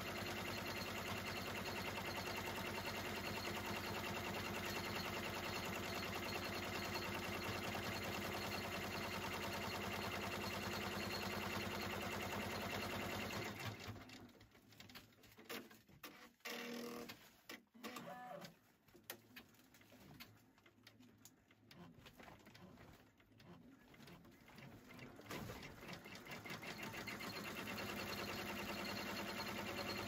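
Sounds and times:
embroidery machine stitching: 0:00.0 - 0:14.4, 0:21.8 - 0:30.0.

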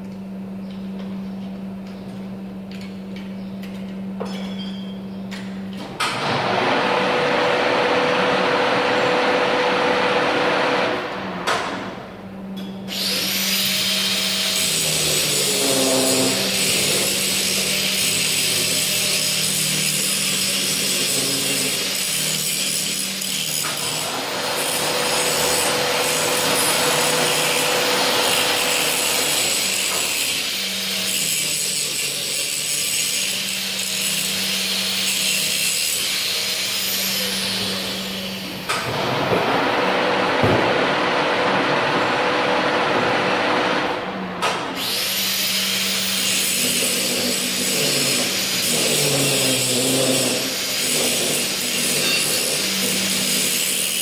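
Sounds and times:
grinder disc grinding steel: 0:12.9 - 0:38.7, 0:44.8 - 0:54.0
angle grinder motor humming: 0:12.9 - 0:40.2.

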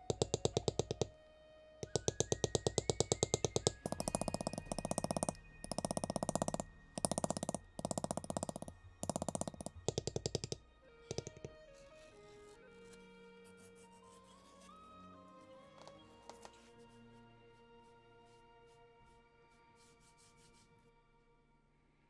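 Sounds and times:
mallet tapping leather stamping tool: 0:00.0 - 0:01.1, 0:01.8 - 0:11.6.

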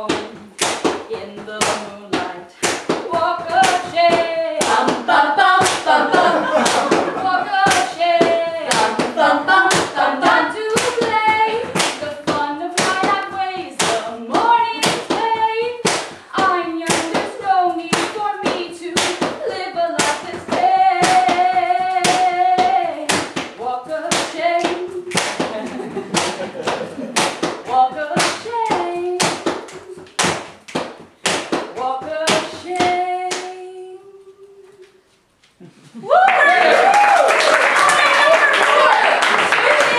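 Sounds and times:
voices singing a melody: 0:00.0 - 0:26.0
hand-clapping in steady beat: 0:00.0 - 0:33.6, 0:36.2 - 0:39.9.

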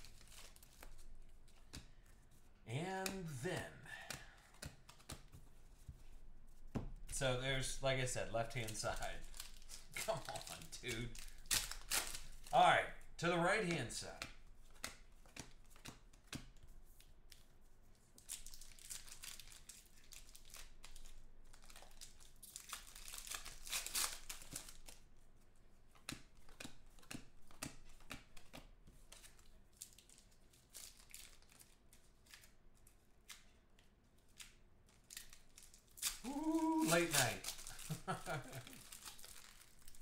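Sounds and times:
foil wrapper crinkling: 0:00.0 - 0:01.8, 0:08.4 - 0:12.5, 0:18.2 - 0:25.0, 0:29.1 - 0:33.4, 0:34.2 - 0:40.0
trading cards rustling: 0:00.0 - 0:12.7, 0:18.2 - 0:25.0, 0:25.9 - 0:33.5, 0:34.2 - 0:40.0
cards clicking together: 0:04.1 - 0:05.4.

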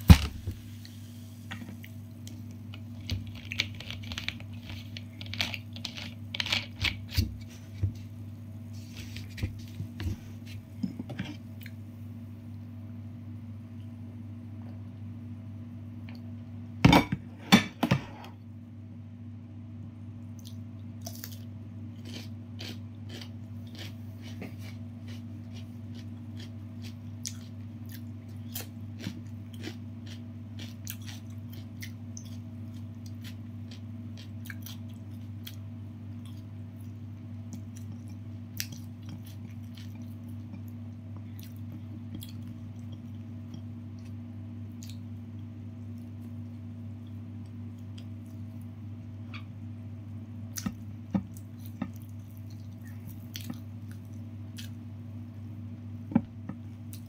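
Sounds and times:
steady low hum: 0:00.0 - 0:57.0
chewing crispy chicken: 0:01.7 - 0:08.1, 0:20.3 - 0:48.7, 0:50.5 - 0:54.8.

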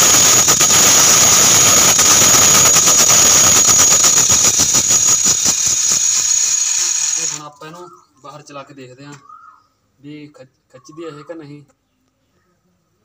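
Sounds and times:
loud mechanical hiss: 0:00.0 - 0:07.4
electric motor whining: 0:00.0 - 0:07.5.

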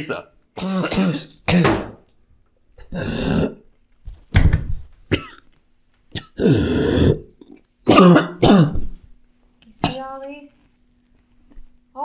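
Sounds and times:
man coughing and retching: 0:00.6 - 0:02.0, 0:02.8 - 0:03.6, 0:05.1 - 0:05.5, 0:06.1 - 0:09.0.

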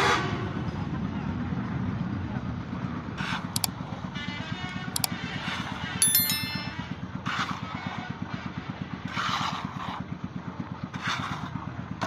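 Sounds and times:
short bright ding: 0:06.0 - 0:06.9.

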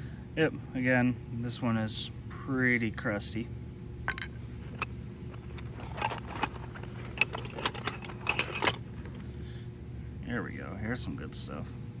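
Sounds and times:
metal hand tools clinking: 0:04.7 - 0:08.8.

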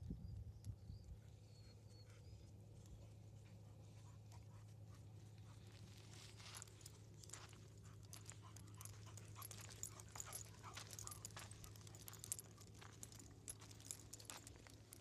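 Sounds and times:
low steady hum: 0:00.0 - 0:15.0
dogs panting: 0:01.2 - 0:15.0
footsteps on gravel: 0:05.7 - 0:15.0.

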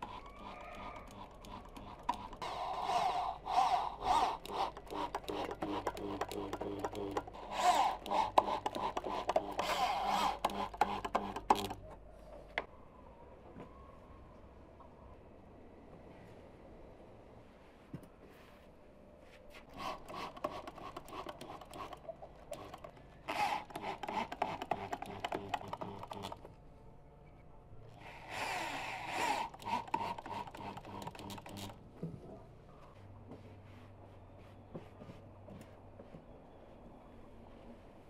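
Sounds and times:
cordless drill driving screws: 0:00.0 - 0:11.8, 0:19.8 - 0:22.0, 0:22.6 - 0:26.4, 0:28.1 - 0:31.7.

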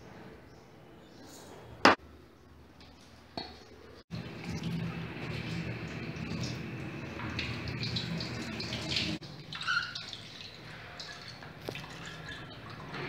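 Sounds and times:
water running through colander: 0:04.1 - 0:13.0.

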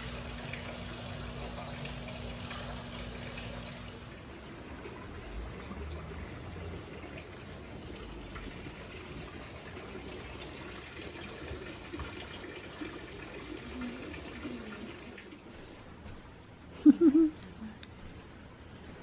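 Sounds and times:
water trickling into bath: 0:00.0 - 0:15.4.

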